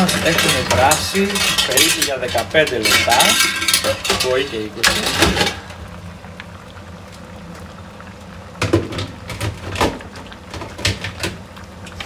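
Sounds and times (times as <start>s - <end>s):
utensil clattering: 0.0s - 5.7s
water boiling and bubbling: 0.0s - 12.0s.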